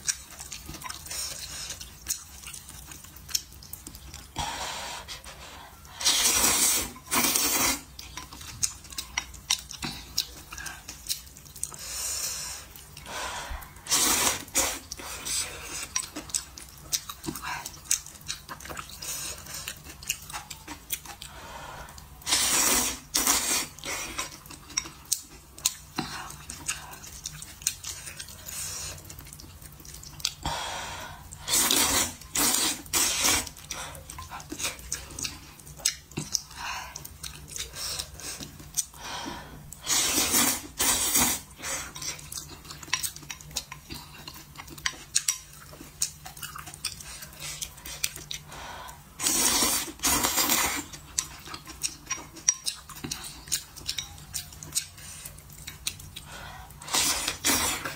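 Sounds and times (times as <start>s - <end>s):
wet chewing and lip smacks: 0.0s - 4.4s, 7.4s - 12.0s, 14.6s - 22.2s, 23.2s - 30.5s, 32.1s - 39.0s, 39.7s - 57.9s
noodles being slurped: 0.0s - 30.4s, 31.3s - 39.0s, 39.7s - 48.5s, 49.1s - 57.9s.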